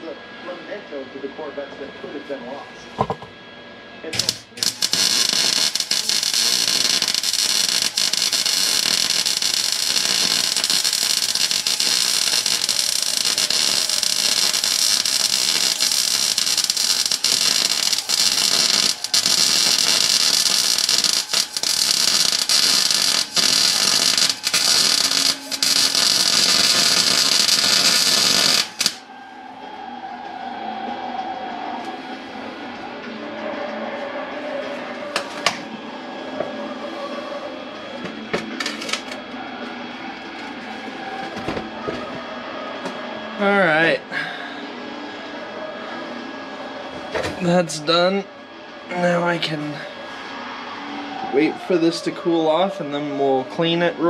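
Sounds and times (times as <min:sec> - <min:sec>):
welder arc crackling: 0:04.1 - 0:29.1, 0:38.6 - 0:39.2.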